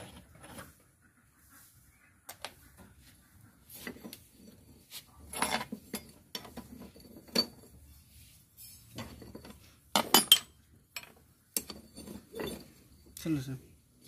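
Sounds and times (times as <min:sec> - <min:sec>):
metallic clinks and knocks: 0:03.8 - 0:07.8, 0:08.6 - 0:13.5.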